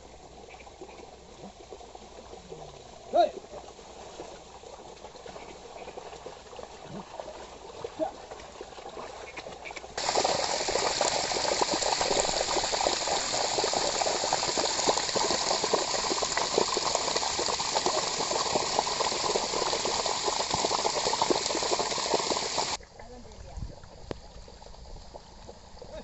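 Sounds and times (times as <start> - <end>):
water gushing from a pipe: 10.0 - 22.8.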